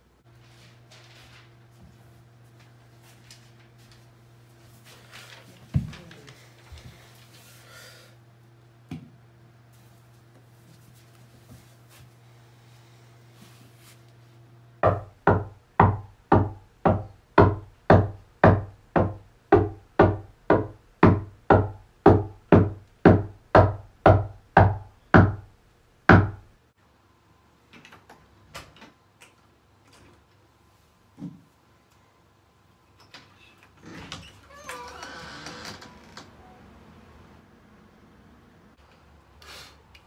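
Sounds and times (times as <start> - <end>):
knocking on wooden door: 14.8 - 25.5, 26.1 - 26.5.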